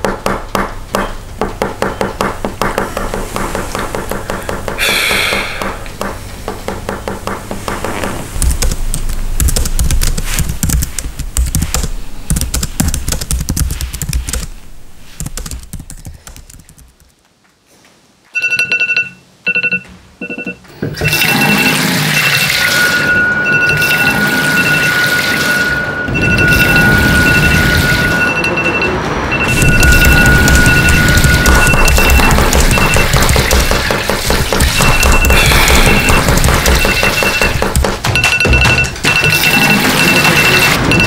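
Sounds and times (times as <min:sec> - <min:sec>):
electronic alarm beeping: 0:18.4 - 0:41.0
steady noise with high tone: 0:21.1 - 0:41.0.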